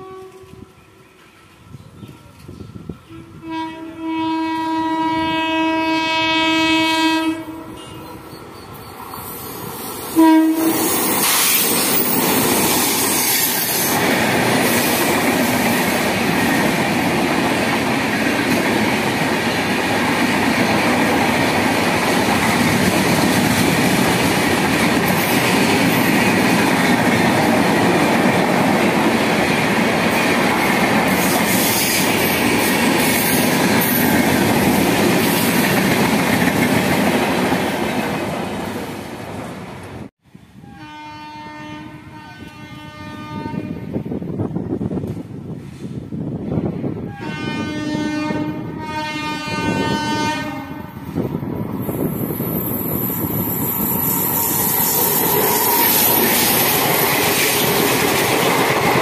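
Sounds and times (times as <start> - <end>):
train passing at speed: 0.0 - 59.0
wheels clacking on rails: 10.9 - 38.6, 51.1 - 59.0.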